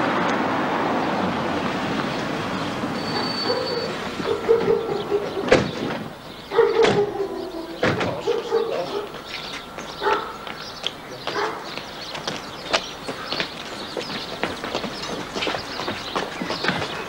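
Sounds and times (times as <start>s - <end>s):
footsteps on pavement: 1.4s - 17.0s
car doors slamming shut: 4.2s - 6.2s, 6.8s - 7.2s, 7.8s - 8.4s.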